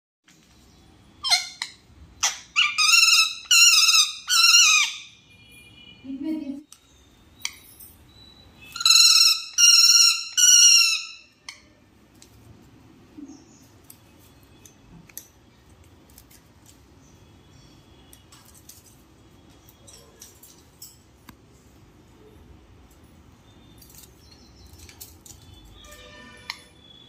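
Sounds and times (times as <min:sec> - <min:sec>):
parrot screeching: 0:01.2 - 0:05.2, 0:08.7 - 0:11.7.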